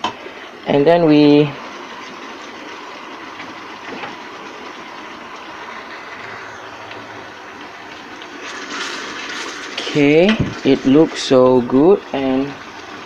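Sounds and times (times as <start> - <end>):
spice paste sizzling in oil: 7.9 - 10.0.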